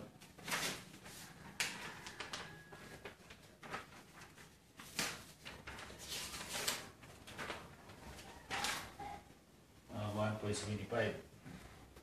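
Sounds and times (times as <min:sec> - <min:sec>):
paper rustling: 0:00.2 - 0:09.0.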